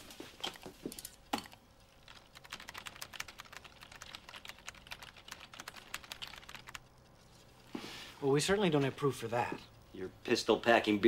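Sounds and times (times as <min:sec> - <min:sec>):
fast keyboard typing: 0:01.4 - 0:07.2.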